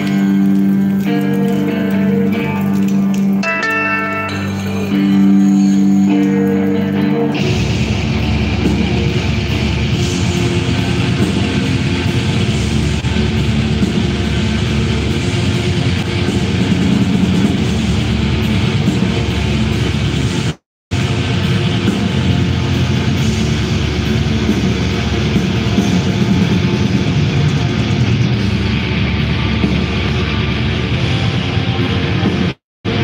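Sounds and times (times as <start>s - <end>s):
held guitar notes ringing: 0.0s - 12.5s
black metal band playing: 0.0s - 33.0s.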